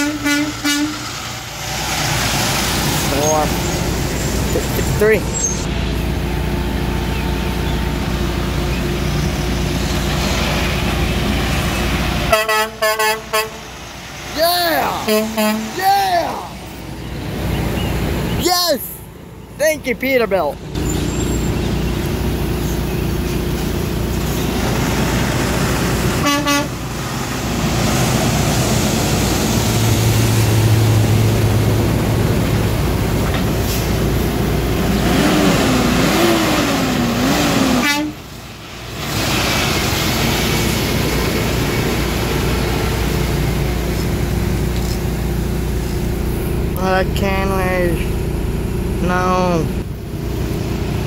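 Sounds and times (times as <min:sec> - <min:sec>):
truck horn toot: 0:00.0 - 0:01.2, 0:12.3 - 0:13.7, 0:15.0 - 0:15.8, 0:26.1 - 0:26.9, 0:37.6 - 0:38.3
truck diesel engines: 0:00.0 - 0:51.0.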